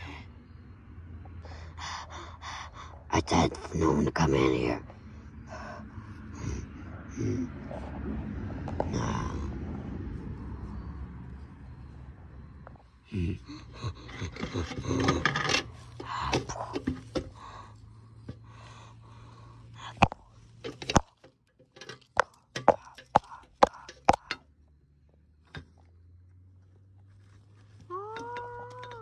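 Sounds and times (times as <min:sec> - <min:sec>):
rustling and scraping: 0:13.7 - 0:24.5, 0:26.9 - 0:29.0
sharp clicks and taps: 0:20.0 - 0:24.5.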